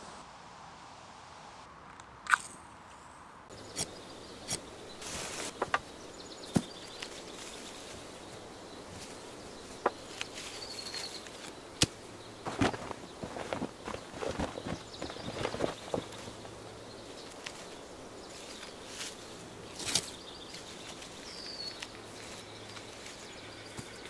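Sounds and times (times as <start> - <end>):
faint outdoor background: 0.0 - 24.0
wooden sticks knocking: 5.5 - 5.9.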